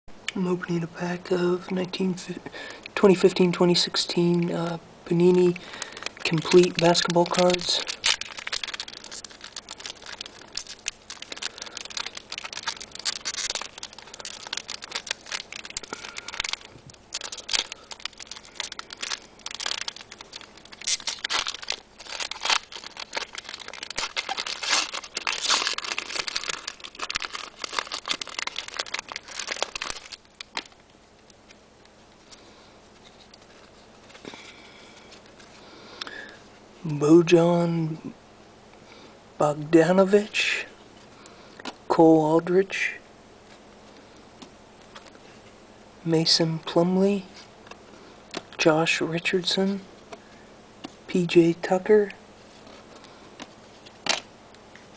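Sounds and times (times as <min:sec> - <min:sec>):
wrapper crinkling and tearing: 0:05.1 - 0:31.6, 0:32.2 - 0:36.4, 0:46.6 - 0:50.2, 0:50.8 - 0:54.3.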